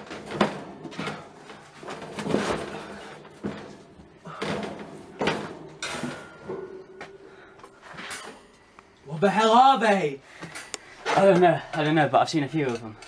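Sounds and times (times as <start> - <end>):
objects knocking and bumping: 0.0 - 8.4.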